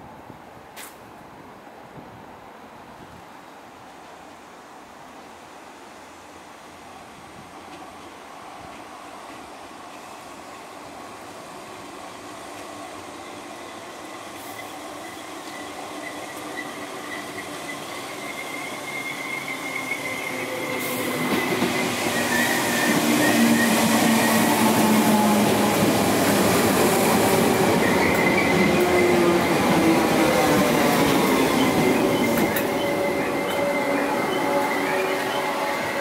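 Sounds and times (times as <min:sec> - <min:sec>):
train wheels rumbling: 0:07.5 - 0:36.0
high-pitched train whine: 0:09.3 - 0:36.0.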